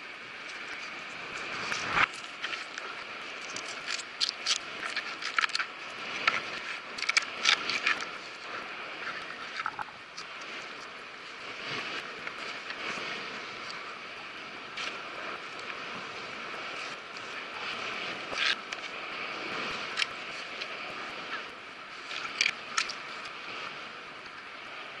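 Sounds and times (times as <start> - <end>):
sea wash: 0.0 - 25.0.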